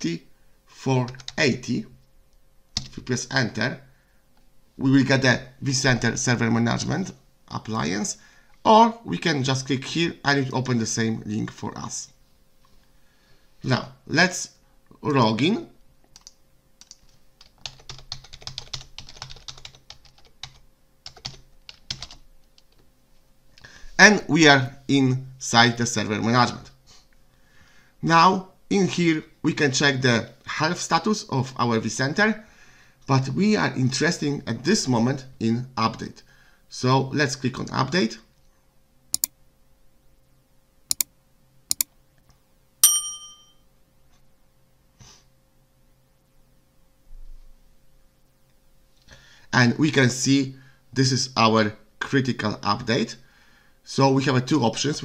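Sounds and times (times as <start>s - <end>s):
computer keyboard typing: 1.1s - 1.4s, 16.1s - 22.8s
mouse clicks: 40.9s - 41.1s, 41.7s - 41.9s
bright bell ding: 42.8s - 43.6s.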